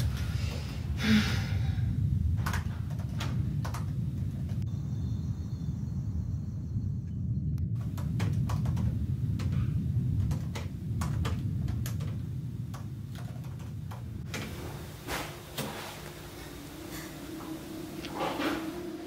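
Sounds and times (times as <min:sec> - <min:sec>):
low steady rumble: 0:00.0 - 0:19.0
typing on laptop keyboard: 0:07.8 - 0:09.6, 0:10.2 - 0:14.0.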